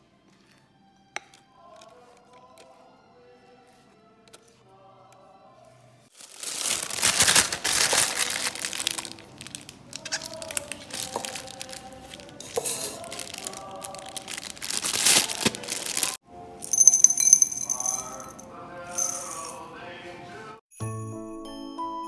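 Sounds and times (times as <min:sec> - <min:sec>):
soft background music: 0:00.0 - 0:22.0
plastic bag crinkling: 0:06.1 - 0:18.3.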